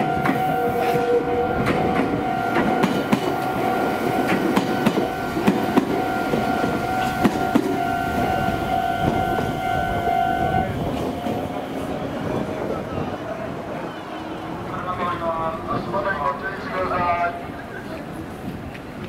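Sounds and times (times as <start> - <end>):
level crossing warning alarm: 0.0 - 11.9
train wheels clacking: 0.0 - 12.6.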